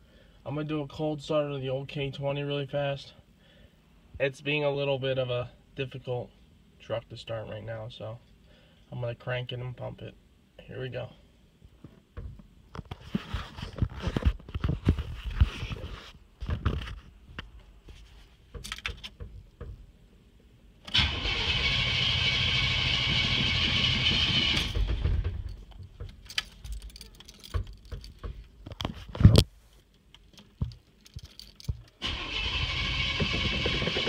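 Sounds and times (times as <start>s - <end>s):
starter cranking engine: 20.9s - 25.5s, 32.0s - 34.0s.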